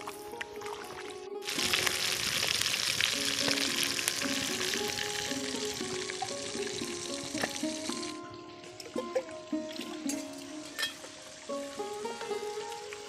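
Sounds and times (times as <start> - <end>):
background music: 0.0 - 13.0
fish sizzling in hot oil: 1.4 - 8.2.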